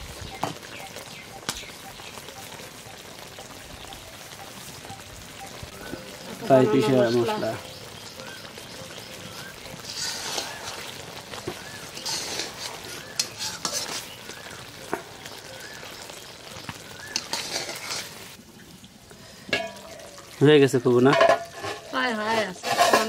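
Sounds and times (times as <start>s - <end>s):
pickle sizzling in a pan: 0.0s - 23.0s
spatula scraping a pan: 9.5s - 15.0s, 17.0s - 18.4s, 21.1s - 23.0s.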